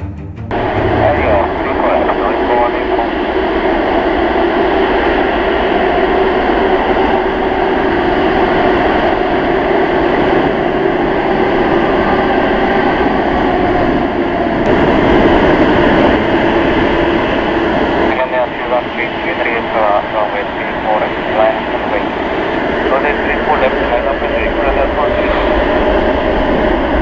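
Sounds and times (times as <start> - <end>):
jet engines running at low thrust: 0.5 - 27.0.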